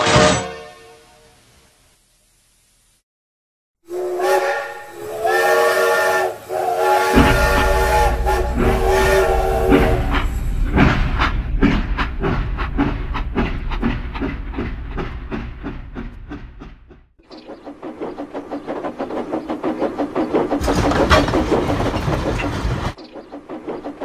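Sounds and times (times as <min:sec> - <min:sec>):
steam locomotive chime whistle: 0:03.9 - 0:10.3
train rhythmic rumble: 0:03.9 - 0:24.0.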